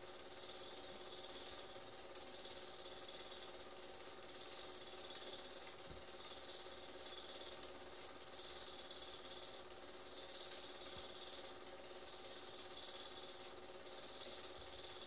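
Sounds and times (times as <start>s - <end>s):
film projector clatter: 0.0s - 15.0s
motor hum: 0.0s - 15.0s.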